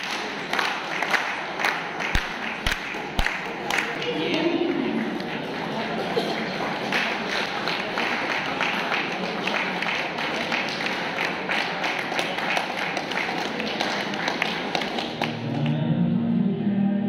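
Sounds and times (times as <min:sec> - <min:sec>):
hand clapping: 0:00.0 - 0:15.8
crowd hubbub in a hall: 0:00.0 - 0:17.0
music: 0:14.9 - 0:17.0.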